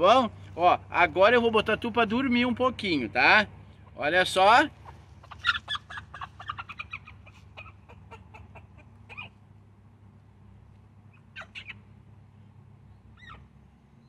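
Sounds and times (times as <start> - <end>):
hen clucking: 3.8 - 9.4, 11.1 - 11.9
hen short sharp calls: 4.7 - 9.4, 11.1 - 11.8.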